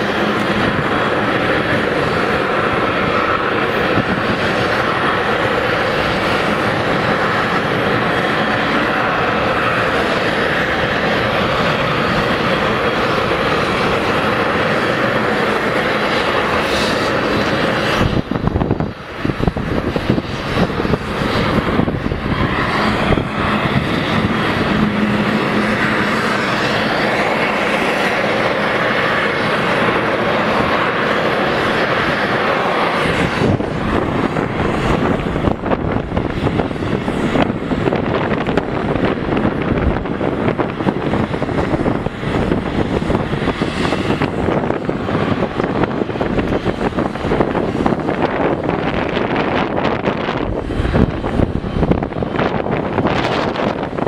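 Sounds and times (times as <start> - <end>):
jet engines whining: 0.0 - 54.0.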